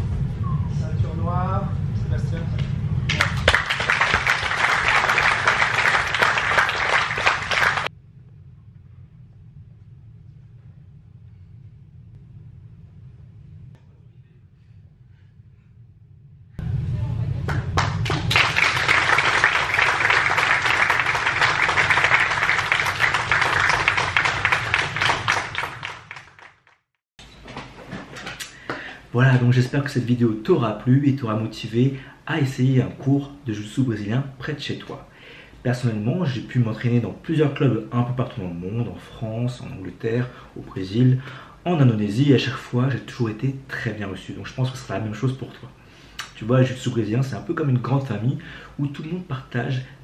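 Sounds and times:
crowd applauding: 3.1 - 7.9, 17.5 - 26.8.

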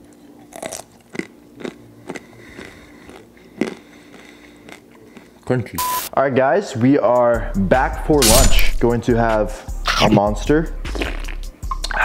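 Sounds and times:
person chewing crunchy nuts: 0.0 - 5.6.

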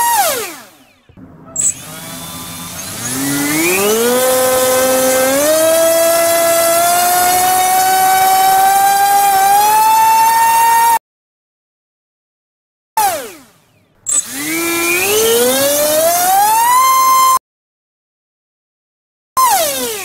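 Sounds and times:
electric motor whine with propeller: 0.2 - 11.0, 14.1 - 17.3.

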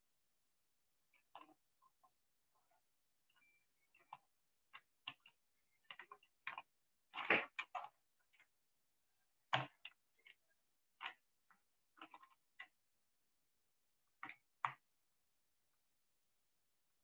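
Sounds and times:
faint clicks and taps: 1.1 - 8.6, 9.4 - 12.8, 14.0 - 14.9.

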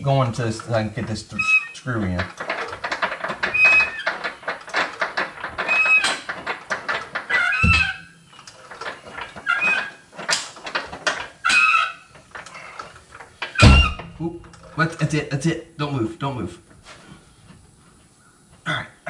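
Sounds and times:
floor jack squeaking: 0.4 - 15.0
clicks and metal rattles: 2.0 - 15.2
dull thump: 2.4 - 8.2, 13.6 - 14.7.

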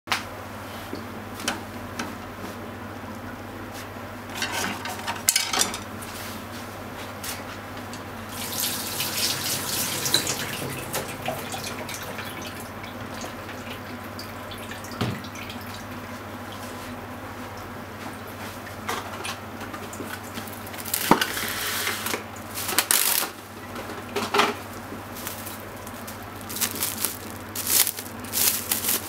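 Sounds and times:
tap water running into steel sink: 8.3 - 13.8.

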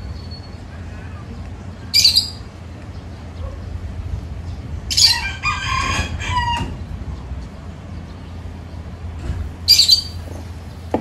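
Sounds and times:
rooster crowing: 5.0 - 6.8.

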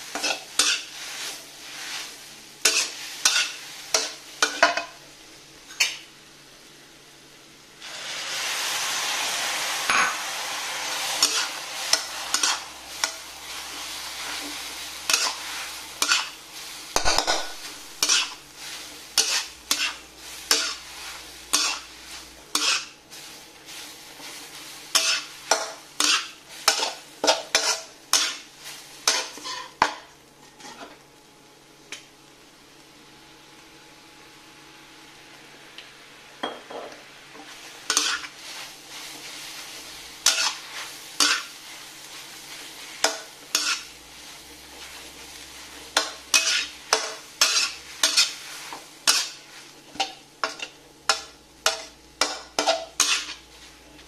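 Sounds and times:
food sizzling in a pan: 0.0 - 54.0
utensil scraping a pan: 11.2 - 16.4, 17.0 - 23.0, 24.2 - 29.8, 30.4 - 31.0, 37.9 - 43.9, 44.8 - 53.8.

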